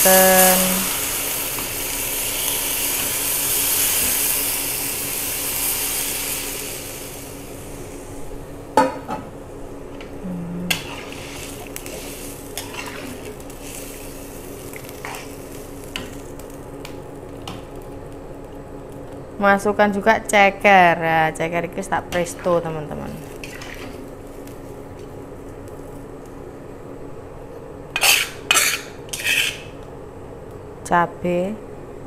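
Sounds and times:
liquid sizzling in hot wok: 0.0s - 8.4s, 10.6s - 18.1s, 23.2s - 25.0s, 28.0s - 29.8s.

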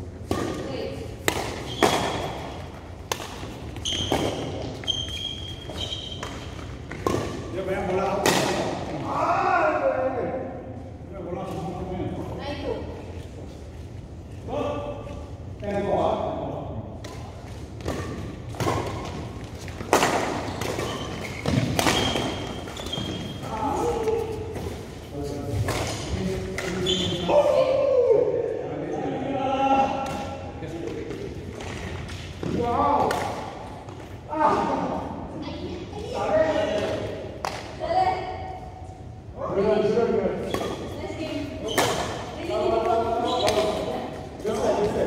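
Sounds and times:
rackets striking shuttlecock: 0.2s - 4.6s, 17.0s - 23.1s
shoes squeaking on court: 1.6s - 2.8s, 3.4s - 7.1s, 17.9s - 25.2s, 26.6s - 27.3s.

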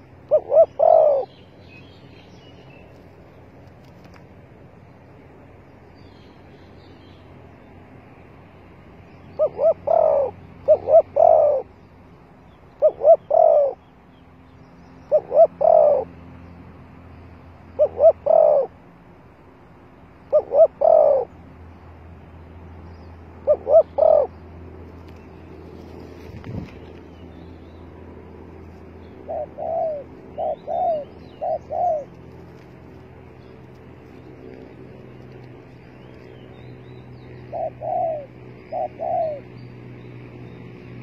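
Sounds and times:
dove cooing: 0.0s - 1.5s, 9.2s - 11.8s, 12.7s - 13.8s, 15.1s - 16.2s, 17.7s - 18.8s, 20.3s - 21.4s, 23.4s - 24.4s, 28.6s - 41.0s.

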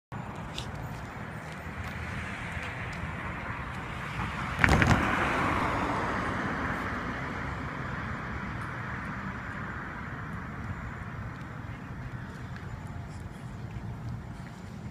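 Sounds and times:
car passing with tyre noise: 0.2s - 14.9s.

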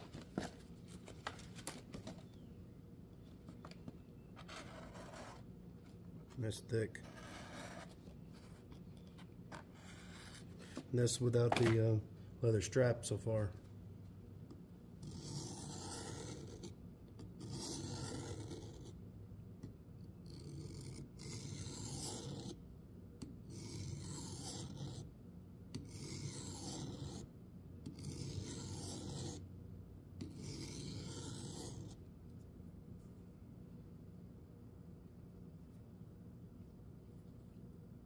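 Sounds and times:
knife blade scraping on sharpener: 25.8s - 27.2s, 27.9s - 29.4s, 30.2s - 32.0s.

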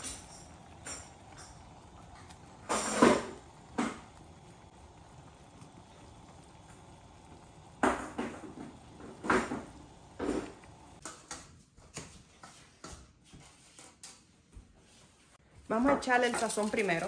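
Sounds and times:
dishes clattering: 0.0s - 4.4s.

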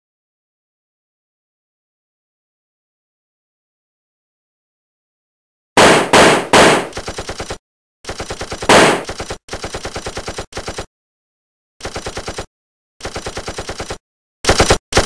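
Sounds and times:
heavy gunshots: 5.8s - 7.0s, 8.6s - 9.2s
machine-gun fire: 5.8s - 10.9s, 11.8s - 15.0s.

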